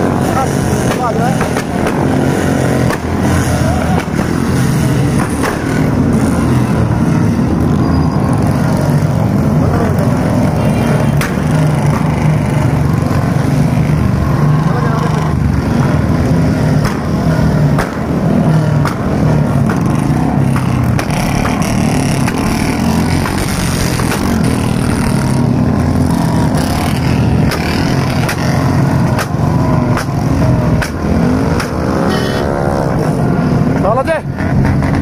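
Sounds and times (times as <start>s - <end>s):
sharp irregular clicks: 27.5s - 28.4s.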